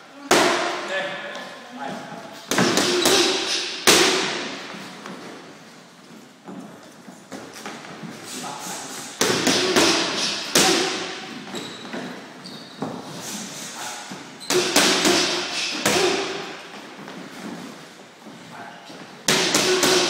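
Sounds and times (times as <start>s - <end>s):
boxing gloves hitting focus mitts: 2.5s - 5.3s, 9.2s - 12.2s, 14.5s - 16.6s, 19.2s - 20.0s.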